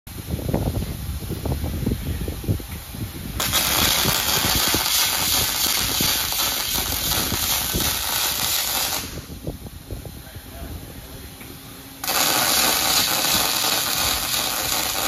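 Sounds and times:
welding arc crackling hiss: 3.4s - 9.5s, 12.0s - 15.0s.

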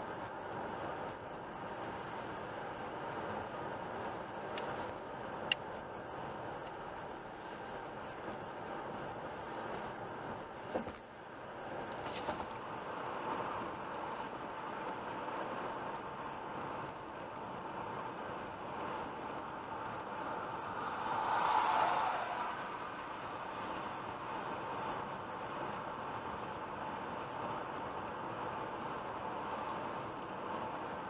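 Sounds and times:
car road noise at highway speed: 0.0s - 31.0s
car overtaking: 18.0s - 26.0s.

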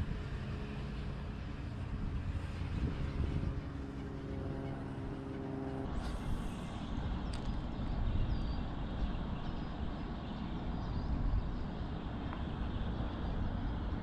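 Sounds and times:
distant road traffic: 0.0s - 14.0s
wind on microphone: 0.0s - 14.0s.

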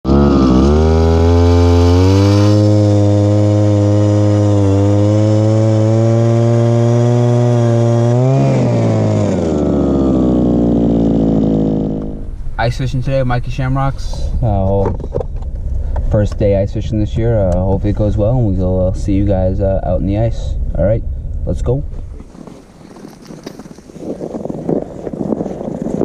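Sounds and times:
ice auger motor drilling: 0.1s - 11.8s.

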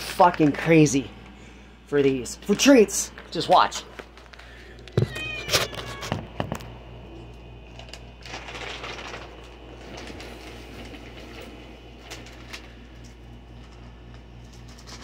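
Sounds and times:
cat meowing: 5.0s - 6.3s
rustling: 7.7s - 15.0s.

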